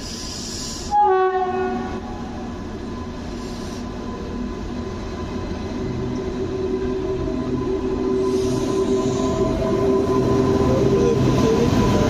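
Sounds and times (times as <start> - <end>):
train hum: 0.0 - 12.0
train horn blast: 0.9 - 2.4.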